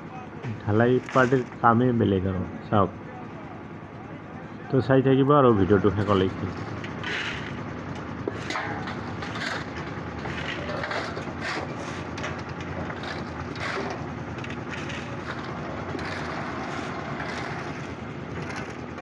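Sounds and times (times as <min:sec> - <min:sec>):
shovels scraping wet concrete: 0:01.0 - 0:01.5, 0:06.5 - 0:07.6, 0:08.3 - 0:18.8
concrete mixer churning gravel: 0:01.0 - 0:01.6, 0:05.9 - 0:19.0.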